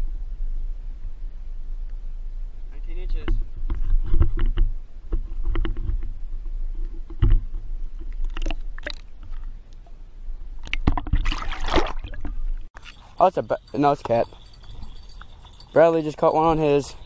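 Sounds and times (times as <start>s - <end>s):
wind rumble: 0.0s - 17.0s
water splashing and sloshing: 6.9s - 13.1s.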